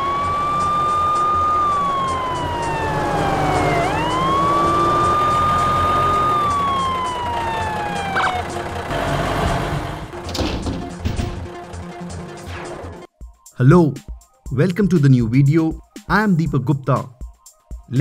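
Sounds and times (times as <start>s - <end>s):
wailing siren: 0.0s - 9.6s.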